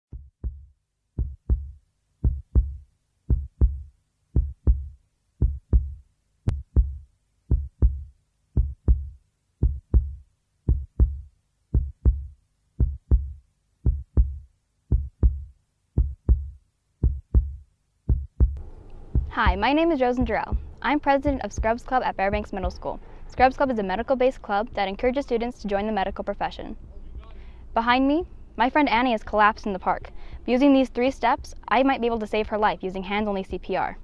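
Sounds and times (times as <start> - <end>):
heartbeat thumps: 0.1 - 23.7.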